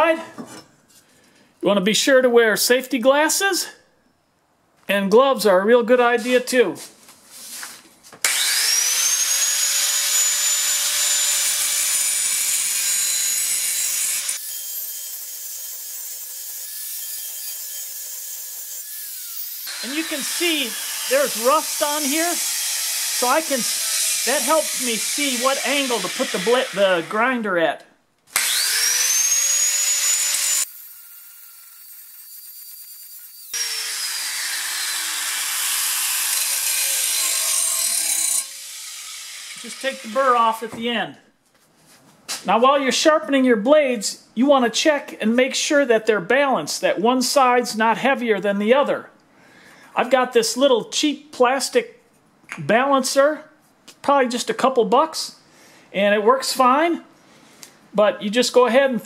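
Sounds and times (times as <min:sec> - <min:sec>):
angle grinder grinding steel blade: 0:08.3 - 0:27.3, 0:28.4 - 0:40.8.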